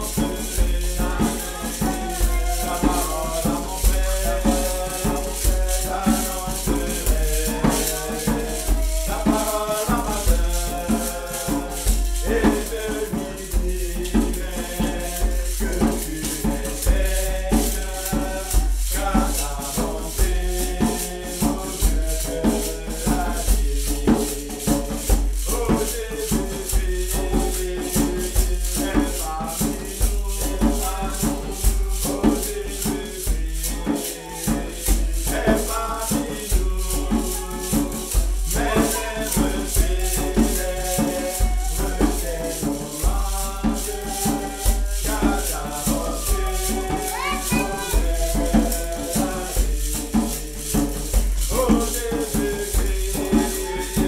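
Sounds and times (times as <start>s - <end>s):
basket shaker rhythm: 0.0s - 54.0s
voices singing a hymn: 0.0s - 54.0s.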